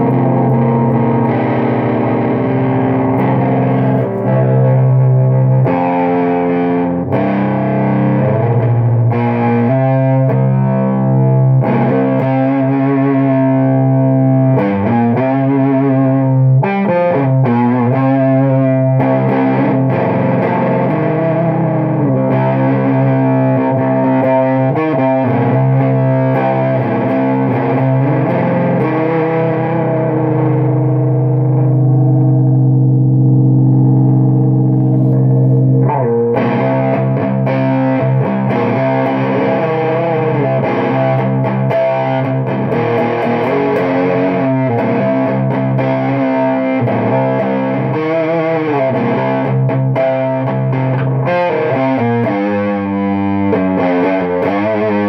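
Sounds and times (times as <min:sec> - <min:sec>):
fuzz electric guitar chords: 0:00.0 - 0:55.0.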